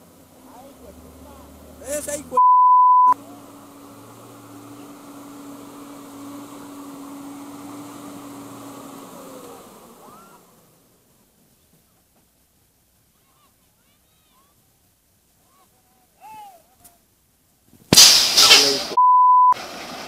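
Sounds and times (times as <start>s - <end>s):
diesel engine droning: 0.0s - 13.1s, 18.0s - 20.0s.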